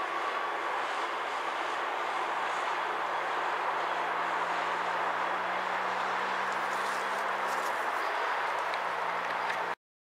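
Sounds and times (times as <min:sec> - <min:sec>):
outdoor rushing noise: 0:00.0 - 0:09.8.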